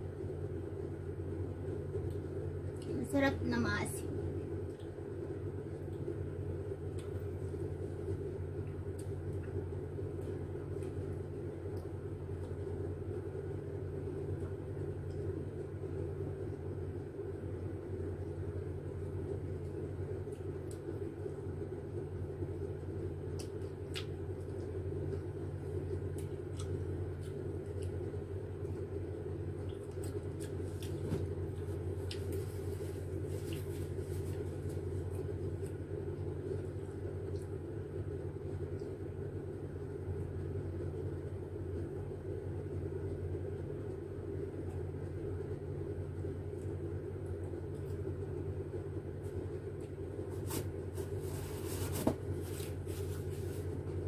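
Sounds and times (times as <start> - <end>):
low room hum: 0.0 - 54.0
eating clicks and smacks: 5.8 - 7.4, 23.2 - 24.8, 25.8 - 28.8.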